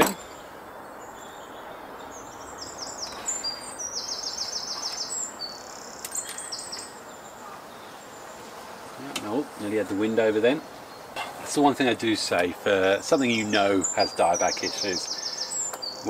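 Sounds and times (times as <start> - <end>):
songbird singing: 0.0 - 16.0
steady outdoor hiss: 0.0 - 16.0.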